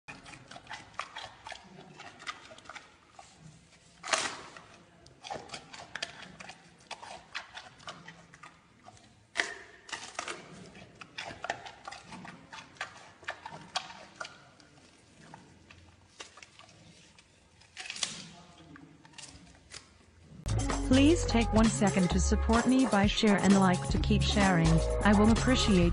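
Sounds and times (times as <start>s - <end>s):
panda chewing bamboo: 0.1s - 22.6s
bamboo shoots cracking: 4.0s - 6.2s, 17.2s - 20.0s.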